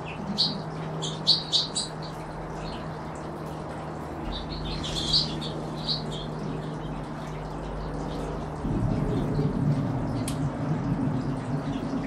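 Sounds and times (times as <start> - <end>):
finches chirping: 0.0 - 2.9, 4.2 - 8.3.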